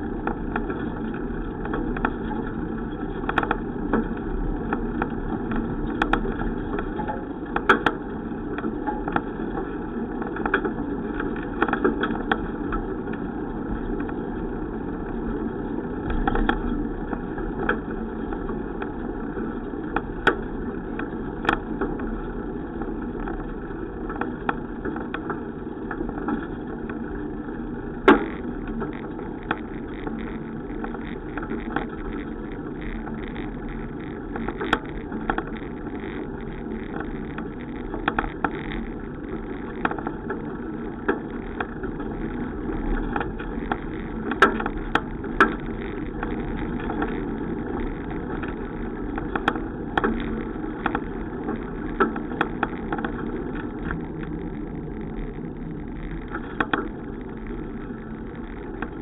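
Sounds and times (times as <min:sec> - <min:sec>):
bicycle rattling over bumps: 0:00.0 - 0:59.0
bicycle tyres and wind rumble: 0:00.0 - 0:59.0.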